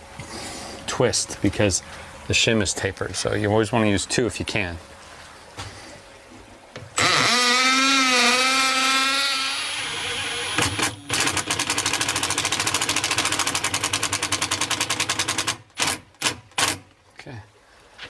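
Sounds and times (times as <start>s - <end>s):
cordless drill boring into wall: 7.0s - 16.8s
impact driver rattling: 7.8s - 16.8s.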